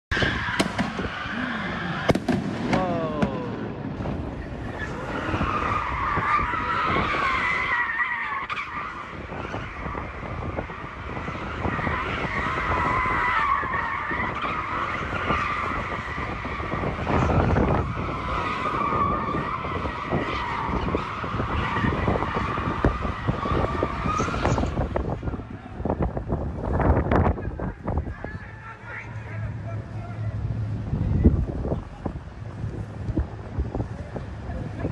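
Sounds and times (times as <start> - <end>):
car tires squealing: 0.1 - 2.8, 3.5 - 34.9
low rumble of engines: 0.1 - 34.9
sharp bangs: 0.3 - 1.3, 1.9 - 4.8.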